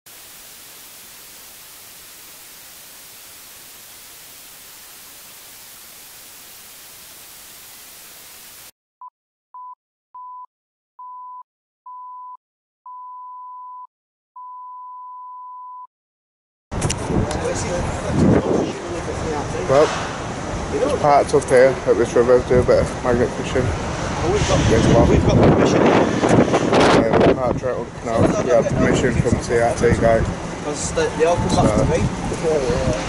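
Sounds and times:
television static hiss: 0.1 - 8.7
test-tone beeps: 9.6 - 15.9.

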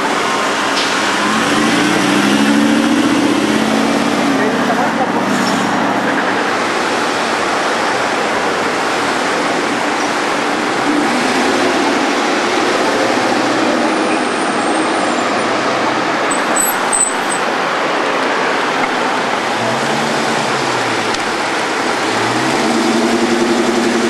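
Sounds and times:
street traffic noise: 0.0 - 24.0
car engine pulling away: 0.4 - 6.3, 19.3 - 24.0.

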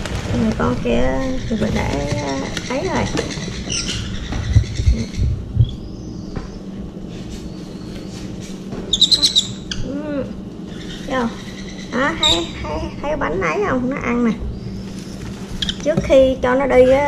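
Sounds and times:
parrots squawking: 0.6 - 6.7, 8.9 - 16.0.

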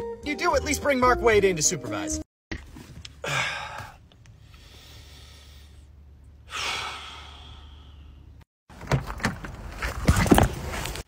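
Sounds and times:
person breathing: 3.2 - 8.3.

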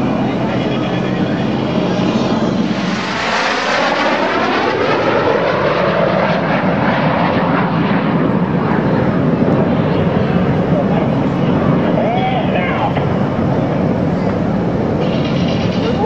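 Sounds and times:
jets flying past overhead: 0.0 - 15.5.

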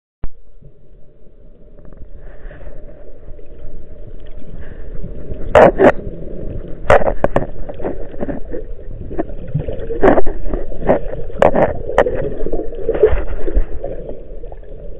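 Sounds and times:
muffled underwater sloshing: 0.3 - 14.9
water splashes: 3.9 - 14.9.

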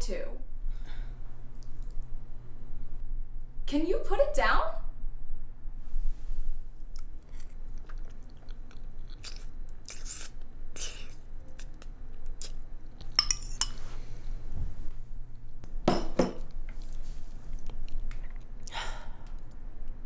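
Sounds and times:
person chewing: 6.9 - 13.7, 16.8 - 20.0
cutlery clicking against bowl: 13.1 - 13.7.

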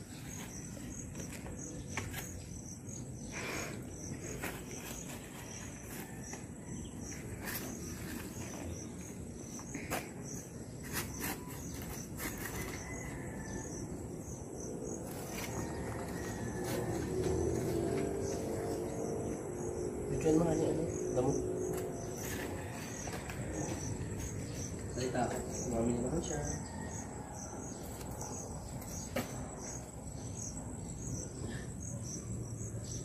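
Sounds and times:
insects chirping: 0.0 - 33.0
shovel digging into soil: 10.8 - 12.8.

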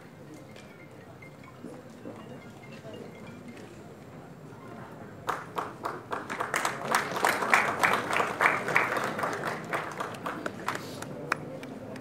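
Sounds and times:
audience clapping: 5.2 - 12.0.

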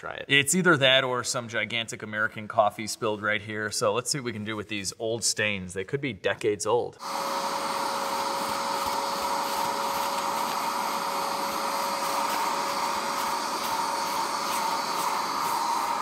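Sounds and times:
carpet cleaner suction motor humming: 7.0 - 16.0.

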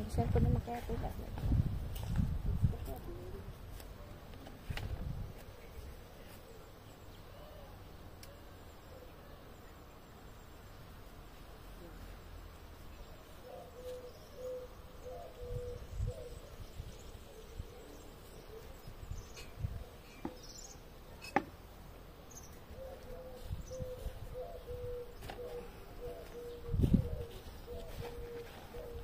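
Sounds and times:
pigeon cooing: 13.4 - 16.6, 22.7 - 29.0.

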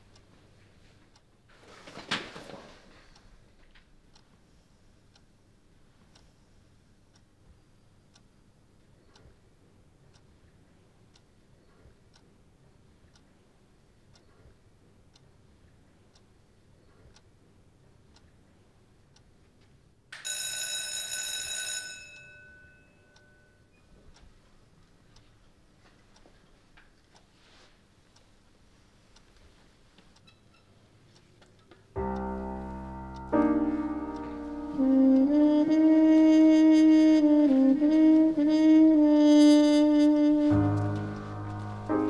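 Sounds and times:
clock ticking faintly: 0.0 - 2.1, 3.1 - 42.0
electric school bell ringing: 20.2 - 23.6.

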